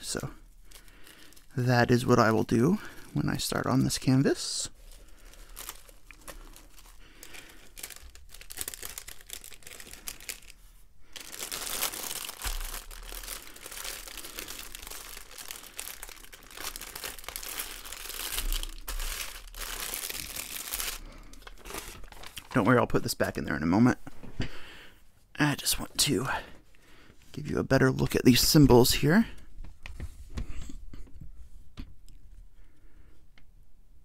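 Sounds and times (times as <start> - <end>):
plastic bags crinkling: 0.0 - 23.4.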